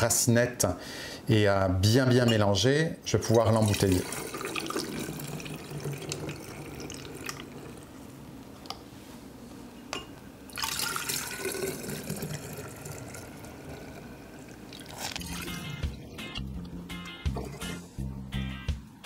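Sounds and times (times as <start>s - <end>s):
liquid trickling and splashing: 10.6s - 16.0s.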